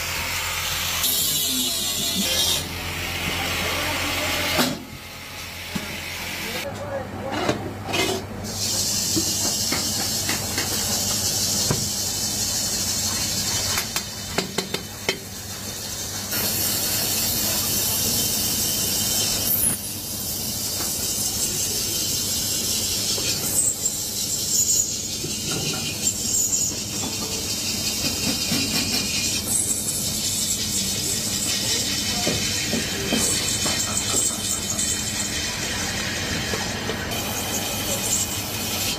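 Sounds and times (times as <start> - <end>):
cutting tool shaving metal: 0.0 - 4.8, 16.3 - 38.9.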